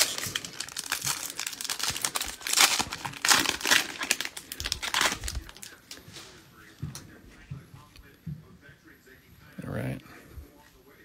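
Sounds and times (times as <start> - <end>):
card packaging crinkling: 0.0 - 6.0.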